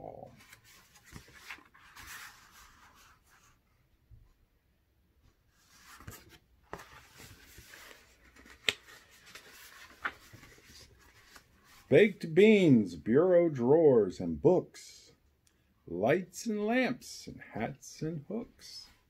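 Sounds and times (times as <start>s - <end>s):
page turning: 0.3s - 3.5s, 5.6s - 11.9s
book paper rustling: 0.3s - 3.6s, 5.5s - 11.9s.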